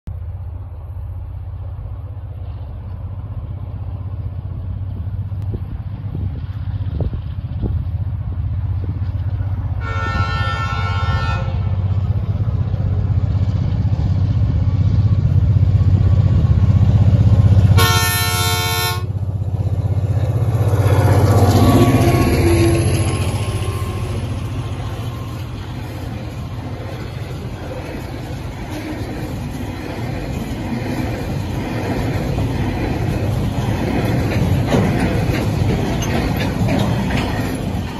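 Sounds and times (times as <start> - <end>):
locomotive engine drone: 0.1 - 37.9
locomotive horn chord: 9.8 - 11.8, 17.7 - 19.1.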